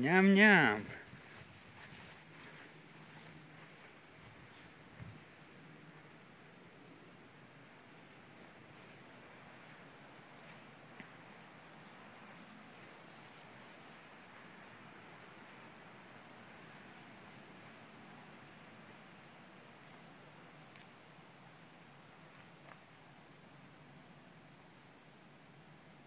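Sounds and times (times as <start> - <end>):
faint outdoor ambience: 0.0 - 26.0
insect chorus trilling: 0.0 - 26.0.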